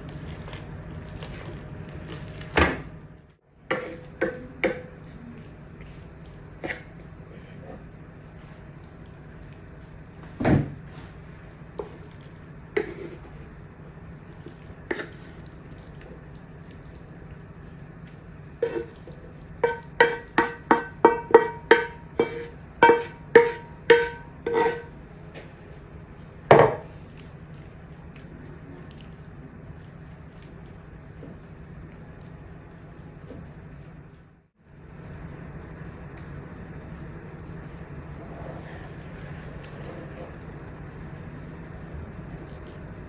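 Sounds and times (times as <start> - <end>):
spatula scraping frying pan: 3.7 - 4.4, 18.6 - 19.0, 19.6 - 24.9
spatula knocking: 19.6 - 24.9.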